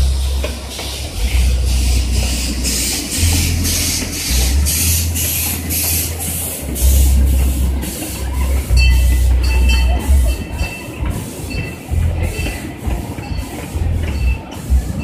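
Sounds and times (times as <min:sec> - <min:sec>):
heavy low rumble: 0:00.0 - 0:15.0
steam locomotive chuffing: 0:00.0 - 0:15.0
high ringing squeal: 0:08.7 - 0:14.6.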